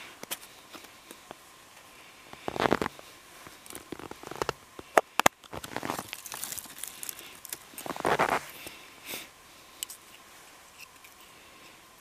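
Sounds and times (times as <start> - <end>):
wood sticks rustling and crackling: 2.3 - 8.8.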